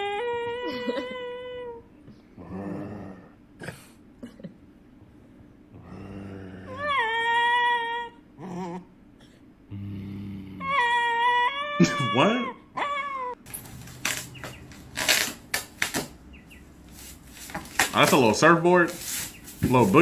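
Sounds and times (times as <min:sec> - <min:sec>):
dog wavering cry: 0:00.0 - 0:01.8, 0:06.7 - 0:08.9, 0:10.6 - 0:13.4
dog low grumbling: 0:02.4 - 0:03.4, 0:05.7 - 0:07.2, 0:09.7 - 0:11.1
dog howling: 0:06.6 - 0:08.8, 0:10.6 - 0:13.4.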